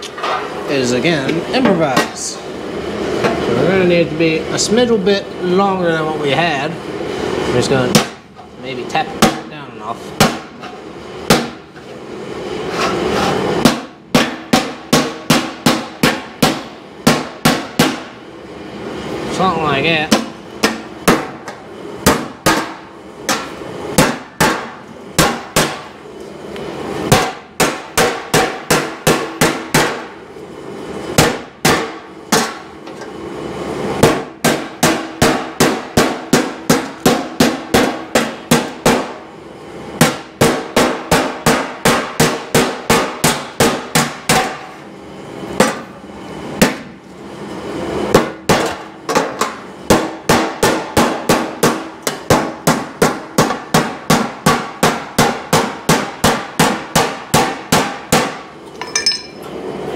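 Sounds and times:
hammer striking sheet steel: 0:07.9 - 0:08.2, 0:09.1 - 0:09.5, 0:10.1 - 0:11.8, 0:12.7 - 0:18.2, 0:20.0 - 0:26.0, 0:27.1 - 0:30.2, 0:31.2 - 0:32.7, 0:34.0 - 0:39.2, 0:40.0 - 0:44.8, 0:45.6 - 0:45.9, 0:46.6 - 0:46.9, 0:48.1 - 0:59.5
metallic ringing tone: 0:58.8 - 0:59.5.

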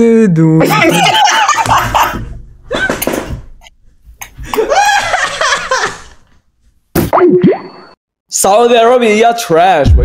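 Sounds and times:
young man laughing: 0:00.6 - 0:03.2, 0:04.4 - 0:06.2.

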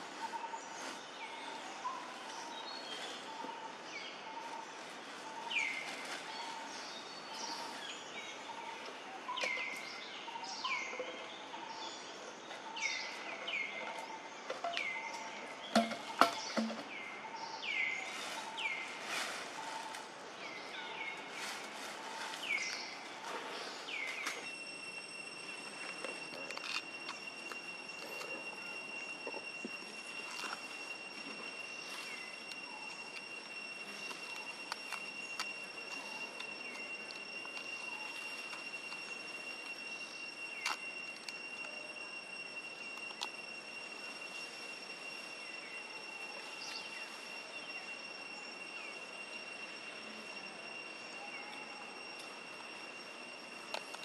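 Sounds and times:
wild birds chirping: 0:00.0 - 0:26.3
steady high whine: 0:00.0 - 0:54.0.

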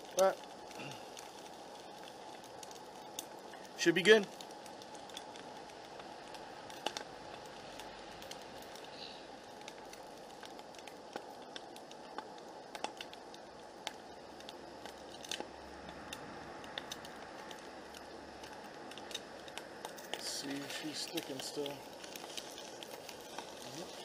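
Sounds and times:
egg sizzling in pan: 0:00.0 - 0:24.0.

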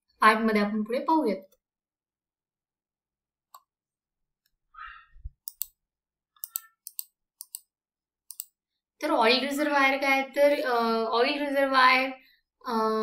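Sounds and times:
computer mouse clicking: 0:05.4 - 0:05.8, 0:06.4 - 0:08.6.

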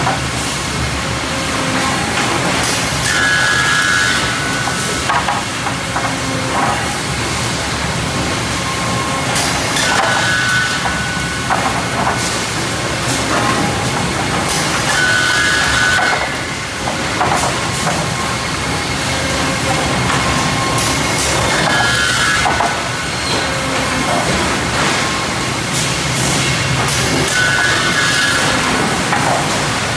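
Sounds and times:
sawmill machinery running: 0:00.0 - 0:29.9
high tone with knocks and clatter: 0:19.1 - 0:25.3.

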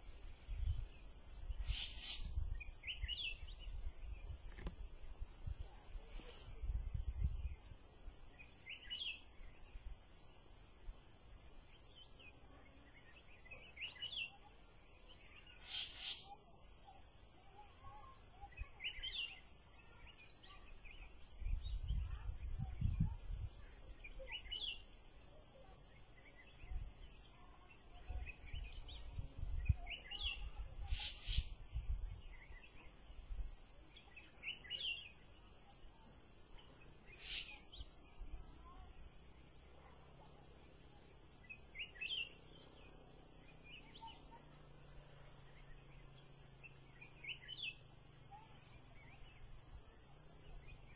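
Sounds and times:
insect chorus: 0:00.0 - 0:50.9
short chirping calls: 0:01.5 - 0:03.6, 0:15.4 - 0:16.4, 0:29.9 - 0:31.6, 0:37.1 - 0:37.9.

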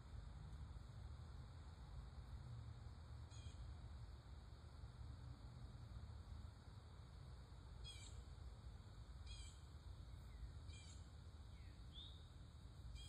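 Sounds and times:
songbird calling: 0:03.3 - 0:03.6, 0:07.8 - 0:08.2, 0:09.3 - 0:12.3.

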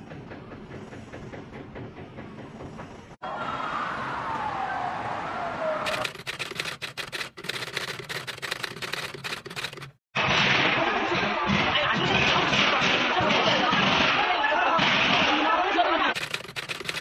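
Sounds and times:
typewriter keystroke clicks: 0:05.9 - 0:10.0, 0:16.2 - 0:17.0.

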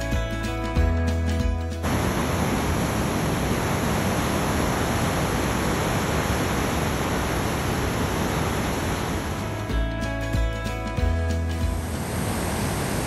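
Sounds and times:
river rapids rushing: 0:01.8 - 0:09.7, 0:11.8 - 0:13.0.

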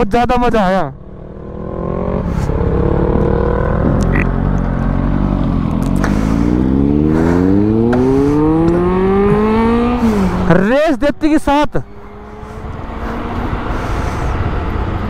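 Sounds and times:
motorcycle engine revving: 0:01.0 - 0:10.6, 0:11.5 - 0:15.0.

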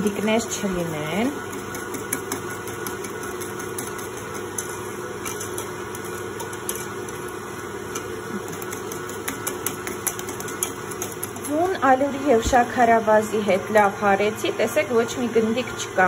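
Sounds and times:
electric mixer running: 0:00.0 - 0:16.0
whisk clicking against glass bowl: 0:01.2 - 0:11.7.

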